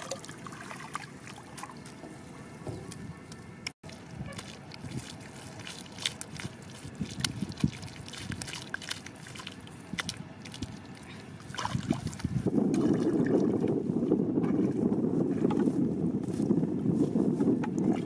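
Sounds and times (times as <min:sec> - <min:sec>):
hands patting wet mud: 0:02.8 - 0:13.8
wind buffeting microphone: 0:03.9 - 0:08.8, 0:09.7 - 0:18.0.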